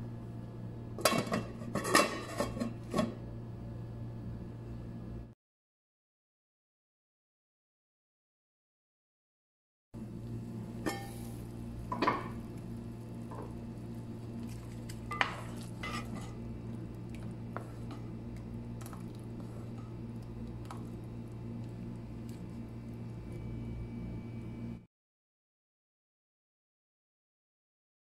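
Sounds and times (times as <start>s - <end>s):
steady low hum: 0.0s - 5.4s, 10.0s - 24.9s
spoon stirring in pot: 14.4s - 22.6s.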